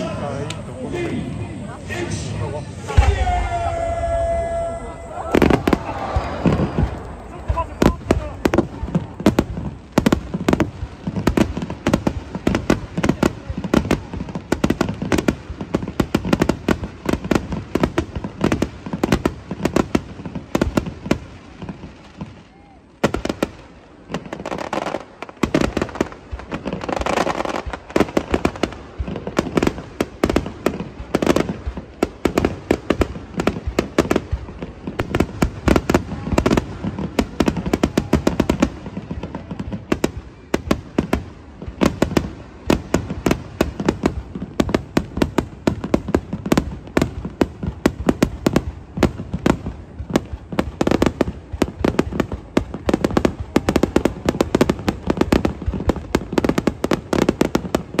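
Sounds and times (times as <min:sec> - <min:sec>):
fireworks bangs: 0:00.0 - 0:58.0
echoing firework booms: 0:01.0 - 0:22.4.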